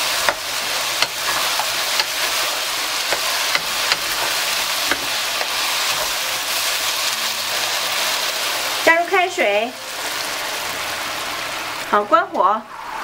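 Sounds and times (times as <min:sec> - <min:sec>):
spatula knocking and scraping pan: 0:00.0 - 0:06.2
food sizzling in a wok: 0:00.0 - 0:13.0.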